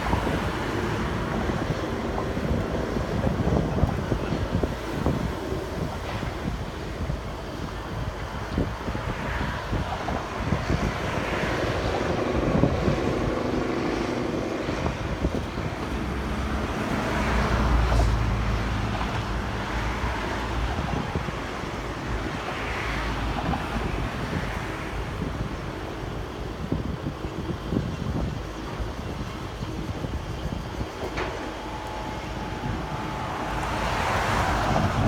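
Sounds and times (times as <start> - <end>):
road traffic passing: 0.0 - 35.0
wind buffeting microphone: 0.0 - 35.0
vehicle rumble passing: 29.7 - 35.0.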